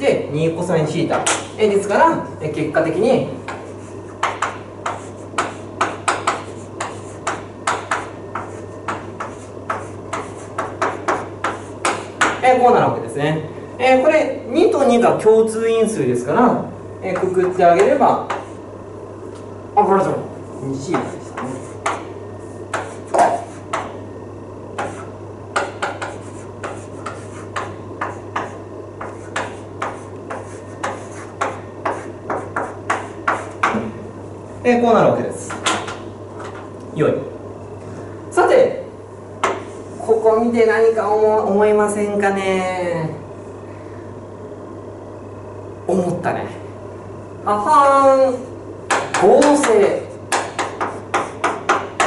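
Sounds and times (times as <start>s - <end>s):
low steady hum: 0.0s - 52.0s
chalk tapping and scratching on blackboard: 3.4s - 12.4s, 17.1s - 18.6s, 20.8s - 24.0s, 24.8s - 33.8s, 39.4s - 40.2s, 48.9s - 52.0s.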